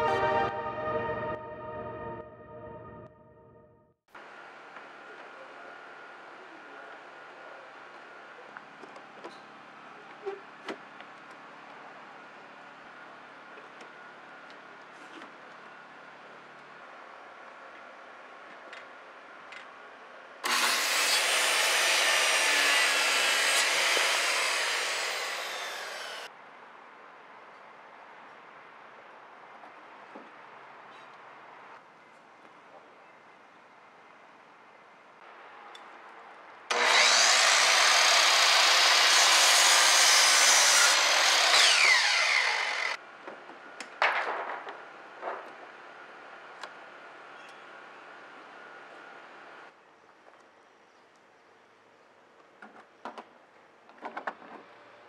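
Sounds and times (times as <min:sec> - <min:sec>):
circular saw cutting wood: 0:20.4 - 0:26.3, 0:36.7 - 0:43.0.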